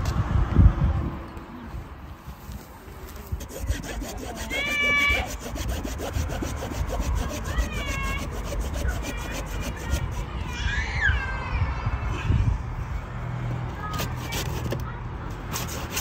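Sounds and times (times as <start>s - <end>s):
sawing strokes on wood: 3.2s - 10.4s, 15.5s - 16.0s
high-pitched squeals: 3.4s - 11.4s.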